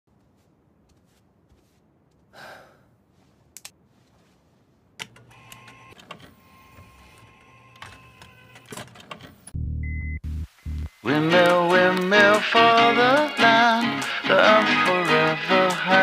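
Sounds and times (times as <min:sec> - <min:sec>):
soft rush: 0:00.1 - 0:04.9
disc player whirring and humming: 0:05.0 - 0:09.5.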